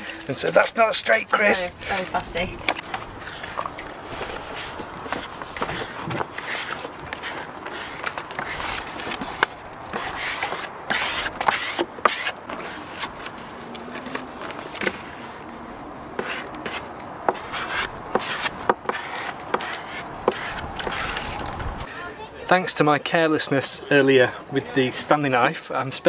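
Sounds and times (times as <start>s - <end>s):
transfer paper rustling and crackling: 0.0s - 21.9s
rubbing: 1.8s - 15.4s, 16.2s - 21.8s.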